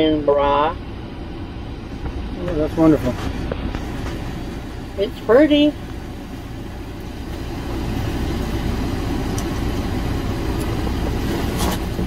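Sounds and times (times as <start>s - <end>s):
low motor rumble: 0.0s - 12.0s.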